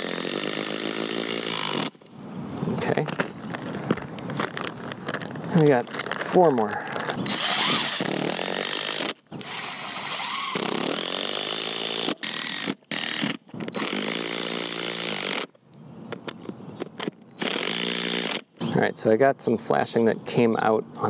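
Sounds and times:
impact driver driving screws: 0.0s - 2.0s, 6.9s - 15.5s, 16.9s - 18.5s.

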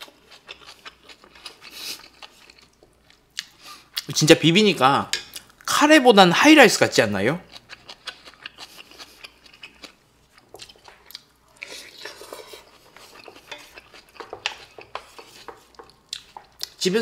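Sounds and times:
person chewing food: 0.0s - 4.1s, 7.4s - 16.8s.

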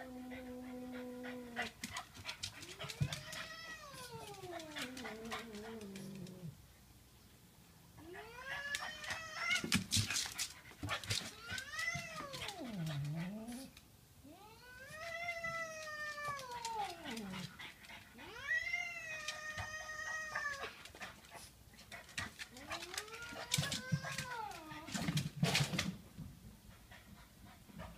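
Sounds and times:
cat yowling: 8.0s - 9.7s, 14.3s - 17.5s, 18.2s - 20.8s.

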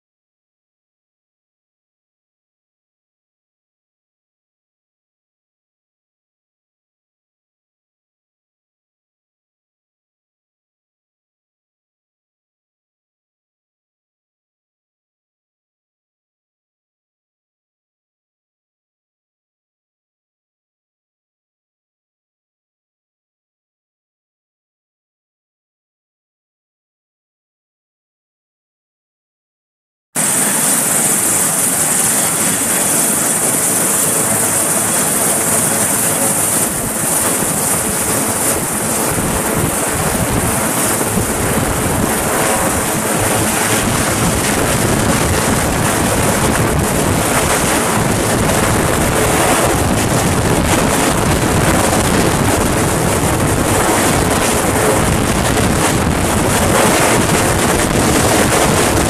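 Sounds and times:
helicopter rotors and engines: 30.2s - 59.0s.

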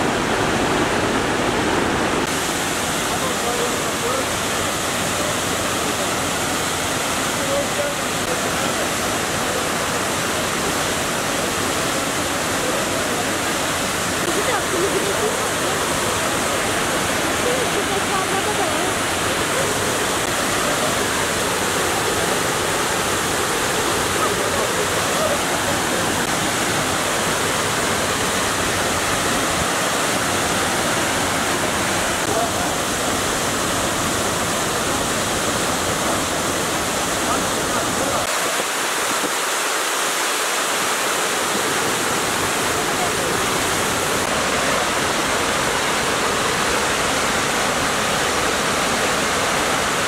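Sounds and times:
waterfall rushing: 0.0s - 50.0s.

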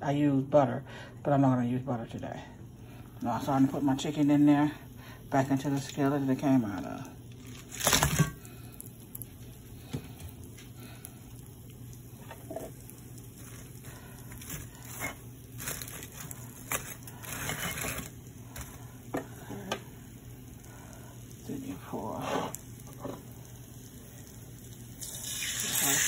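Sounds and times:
low steady hum: 0.0s - 25.9s
food and utensil scraping skillet: 12.2s - 19.3s, 22.2s - 23.4s.

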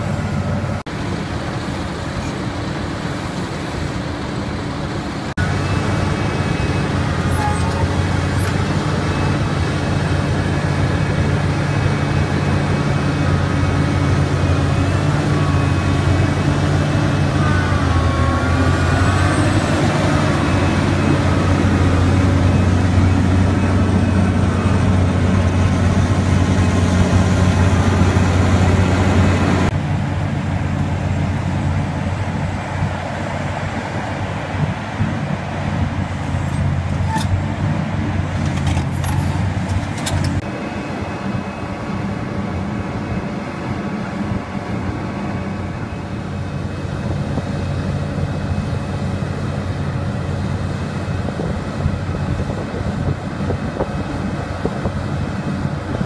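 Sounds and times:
excavator diesel engine drone: 0.0s - 56.0s
wavering squeal: 6.5s - 8.5s.

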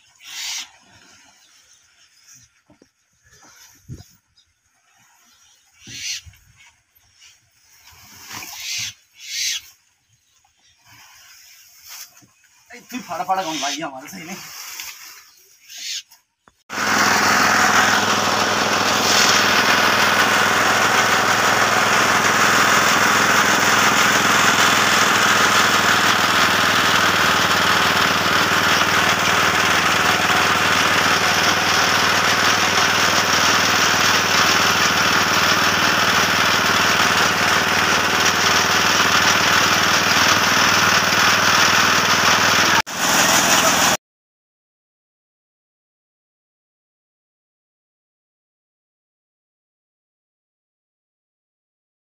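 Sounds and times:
chaff cutter running: 16.7s - 44.0s.

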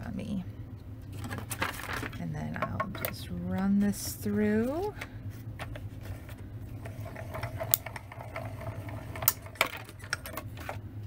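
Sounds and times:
hand-cranked machine grinding: 6.8s - 10.1s.

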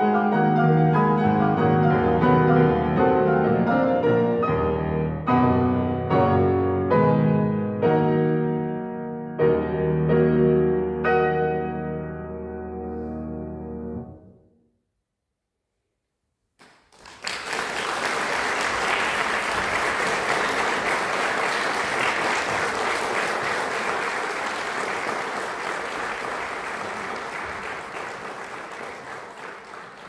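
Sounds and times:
audience applauding: 16.6s - 30.0s.

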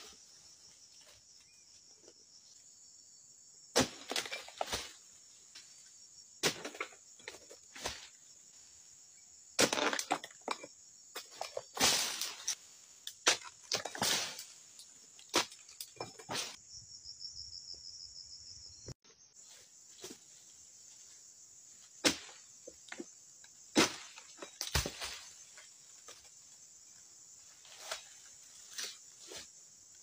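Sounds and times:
insects trilling: 0.0s - 30.0s
palm fronds cracking and rustling: 11.2s - 15.9s, 27.4s - 29.5s.

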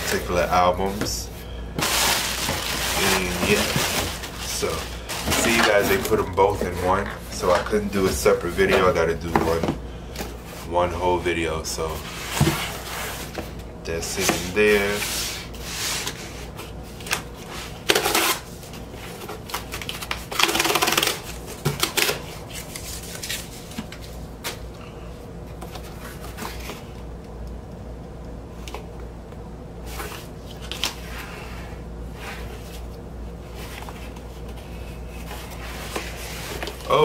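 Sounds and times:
cardboard tearing: 1.8s - 6.2s, 17.8s - 18.5s
cardboard rustling: 1.8s - 9.6s, 11.9s - 24.6s.

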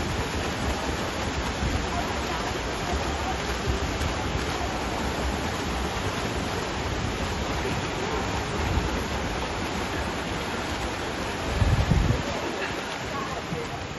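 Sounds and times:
swimmers splashing in pool: 0.0s - 13.9s.

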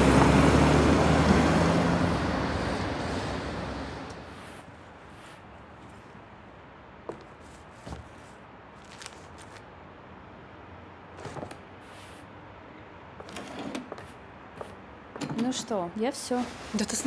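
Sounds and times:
papers rustling: 7.1s - 9.6s.

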